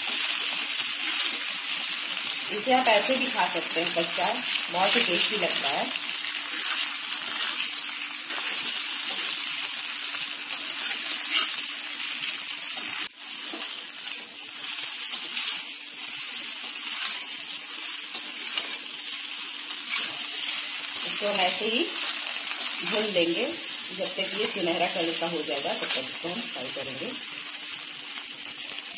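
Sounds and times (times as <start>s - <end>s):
food sizzling in oil: 0.0s - 28.9s
metal spatula scraping a pan: 10.4s - 23.2s.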